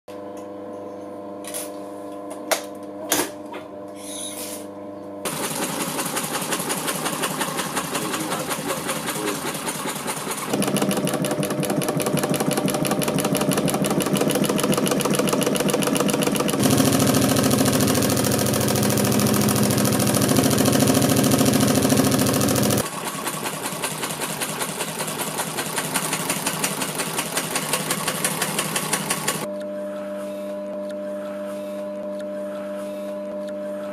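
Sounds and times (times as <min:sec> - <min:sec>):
sewing machine motor humming: 0:05.3 - 0:29.5
sewing machine needle stitching: 0:05.3 - 0:29.5.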